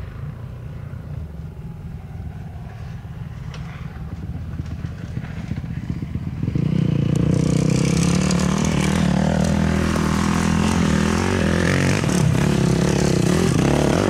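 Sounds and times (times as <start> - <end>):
dirt bike engine running: 4.0 - 14.0.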